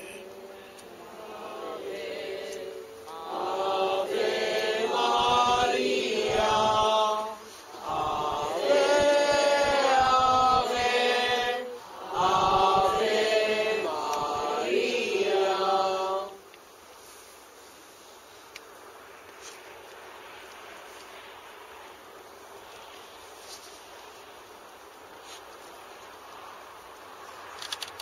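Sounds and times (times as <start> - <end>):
group singing a devotional chant: 0.0 - 16.4.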